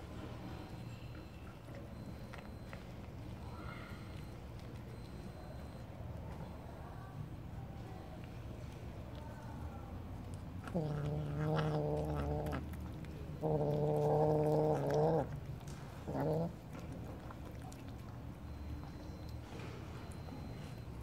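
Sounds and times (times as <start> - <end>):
cat growling low: 10.4 - 18.2.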